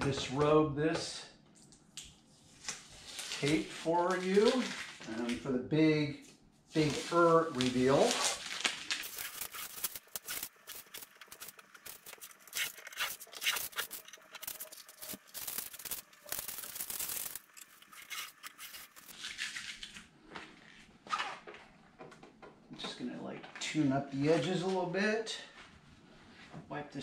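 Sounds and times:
tape peeling with crackling: 0:02.6 - 0:05.4, 0:06.8 - 0:21.7
tape scrunched in hands: 0:06.8 - 0:20.1.

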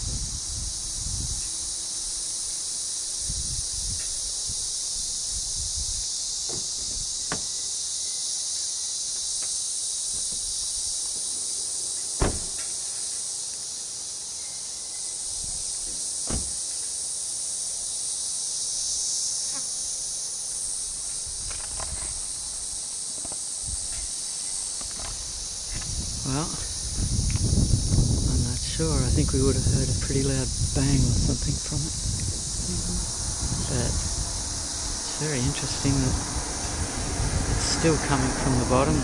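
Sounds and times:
high-pitched insect chorus: 0:00.0 - 0:39.0
sharp knocks: 0:06.5 - 0:07.5, 0:12.2 - 0:12.7.

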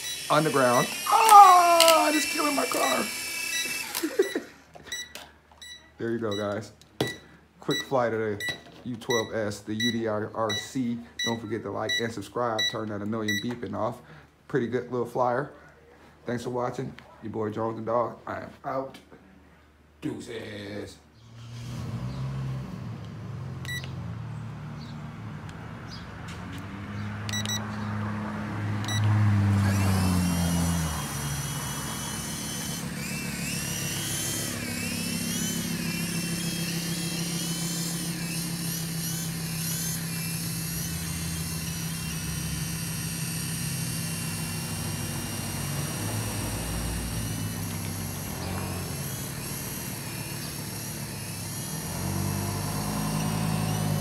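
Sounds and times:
toy helicopter rotor whine: 0:00.0 - 0:04.5, 0:28.8 - 0:54.0.

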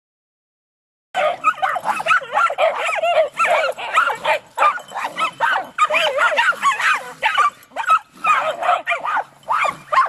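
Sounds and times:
small dogs barking and yipping: 0:01.2 - 0:10.0.

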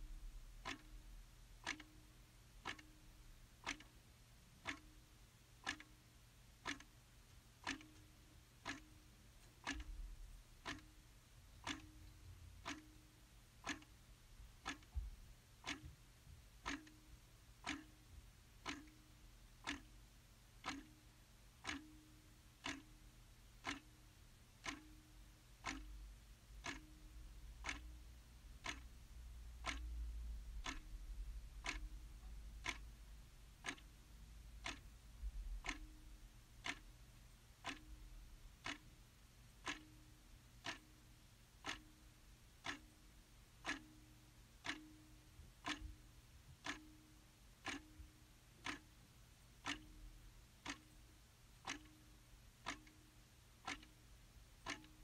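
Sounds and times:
faint low rumble: 0:00.0 - 0:03.7, 0:25.0 - 0:40.6
clock ticking: 0:00.0 - 0:55.0.

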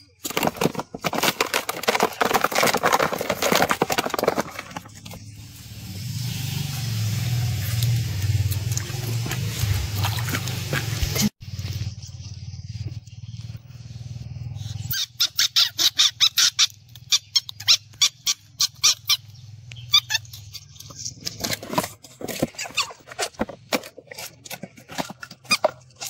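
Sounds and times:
ferret squeaking cries: 0:14.8 - 0:20.9.

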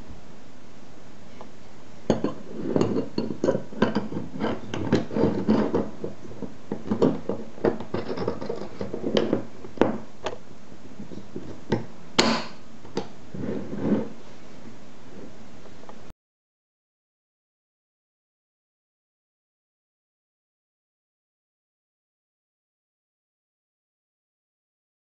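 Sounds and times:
metal clicks and scraping: 0:02.2 - 0:09.5.

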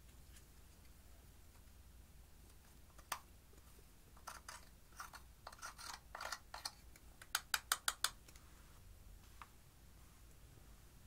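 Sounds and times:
metal tool scratching powder: 0:04.2 - 0:06.4.

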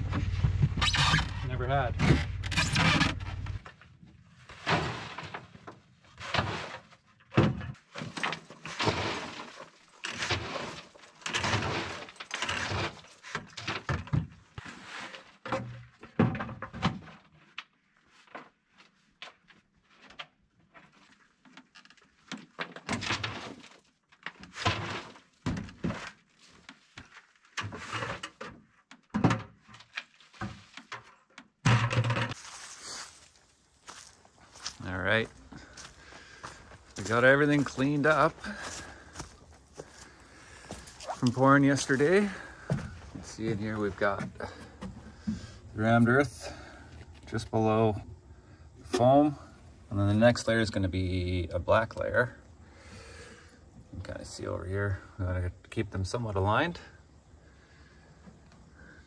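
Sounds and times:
bucket and boots thunking on wood: 0:00.0 - 0:01.2, 0:35.5 - 0:45.6
earth pouring and scraping: 0:04.3 - 0:13.6, 0:32.1 - 0:48.0.

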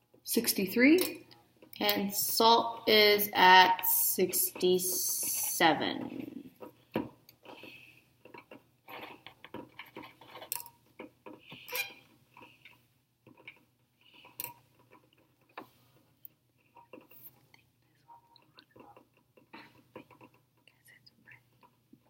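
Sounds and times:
faint irregular clicks: 0:06.6 - 0:22.0.

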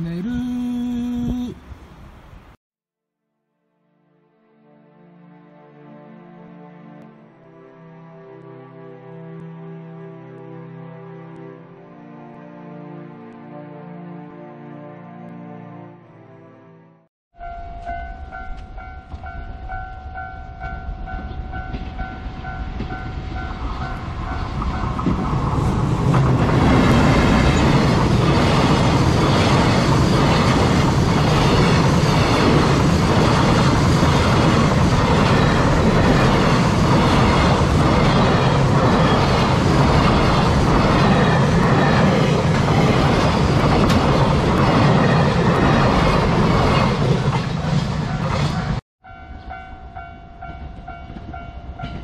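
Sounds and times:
level crossing warning bell: 0:17.4 - 0:24.9, 0:48.1 - 0:52.0
freight train passing: 0:17.4 - 0:52.0.

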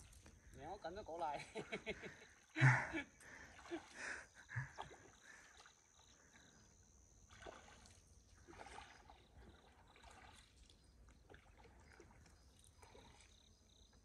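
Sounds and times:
pole splashing in water: 0:07.3 - 0:13.3.

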